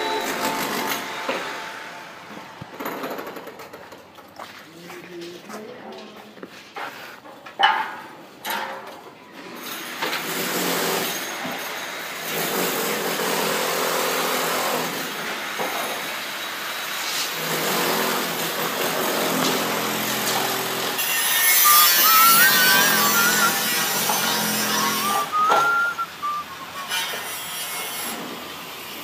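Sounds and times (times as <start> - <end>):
power tool running: 17.4 - 27.4.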